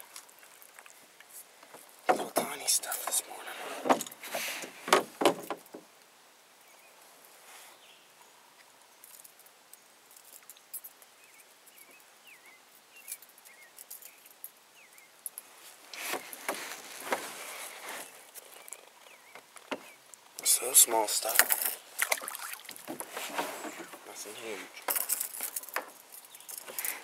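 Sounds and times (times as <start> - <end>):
faint bird chirps: 10.8 - 15.2
rustling handling noise: 15.3 - 20.3, 21.2 - 27.0.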